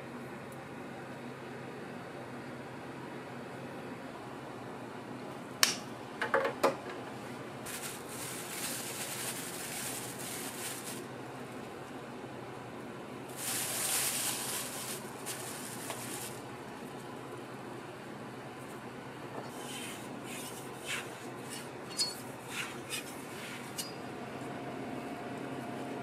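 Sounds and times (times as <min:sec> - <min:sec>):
fan hum: 0:00.0 - 0:26.0
plastic bag crinkling: 0:07.6 - 0:11.1, 0:13.3 - 0:17.0.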